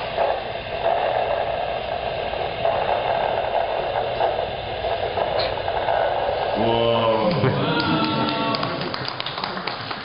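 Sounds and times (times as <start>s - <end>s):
speaker hissing and crackling: 0.0s - 10.0s.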